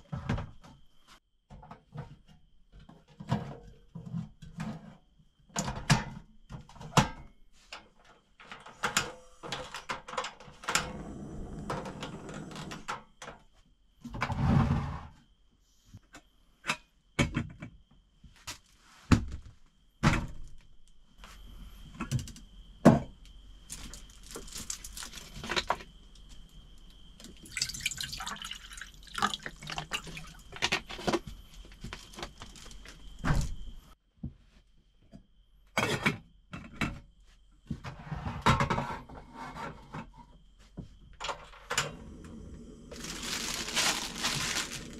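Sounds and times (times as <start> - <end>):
water pouring into saucepan: 27.4 - 30.3.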